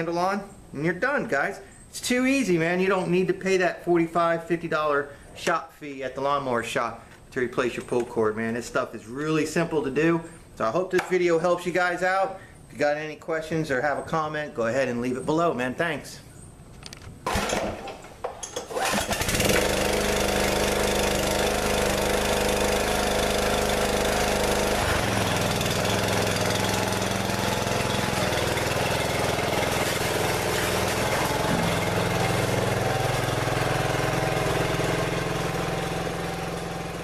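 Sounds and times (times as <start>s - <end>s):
mower engine pull-started and running: 17.2s - 37.0s.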